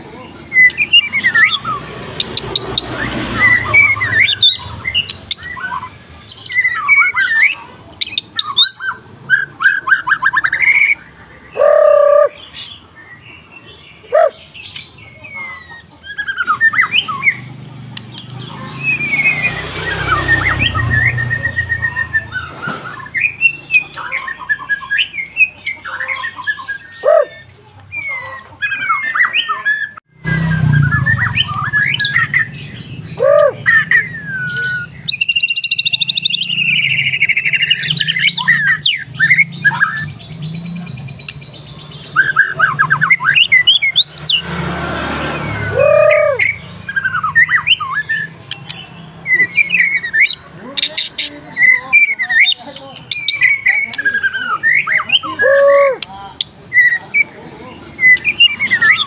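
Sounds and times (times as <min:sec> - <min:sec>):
bird singing whistles and trills: 0:18.7 - 0:44.4, 0:45.3 - 0:50.4, 0:58.0 - 0:59.0.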